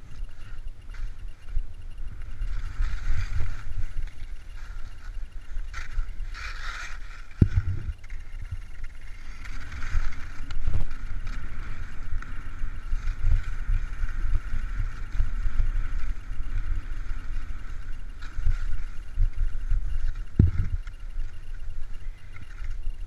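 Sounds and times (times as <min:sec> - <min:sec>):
skis scraping over snow: 0:00.0 - 0:23.0
wind buffeting microphone: 0:00.0 - 0:23.0.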